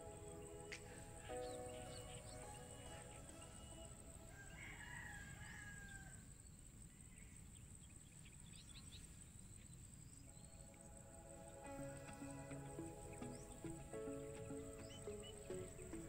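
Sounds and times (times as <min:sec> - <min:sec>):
faint rooster crowing: 0:02.9 - 0:06.3.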